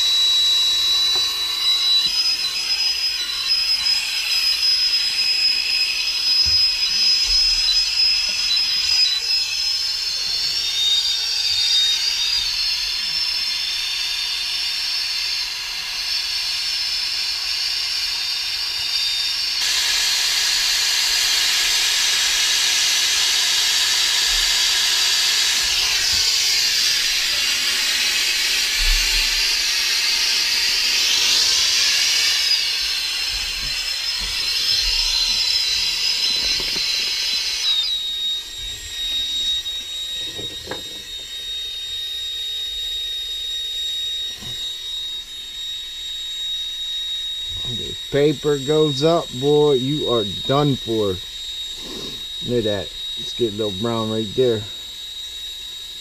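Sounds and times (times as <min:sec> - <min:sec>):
thin high whistle: 0:00.0 - 0:56.0
torch burning with hiss: 0:11.8 - 0:41.6, 0:47.5 - 0:55.1.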